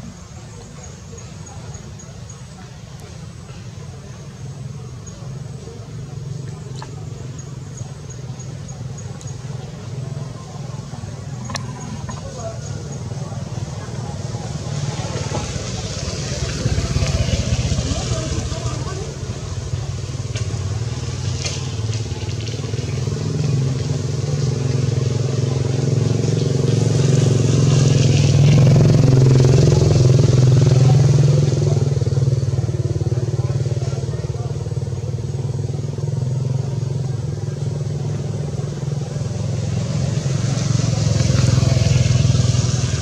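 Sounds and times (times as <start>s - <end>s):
low outdoor rumble: 0.0s - 43.0s
motor engine running: 0.0s - 43.0s
faint clicks: 9.0s - 9.4s.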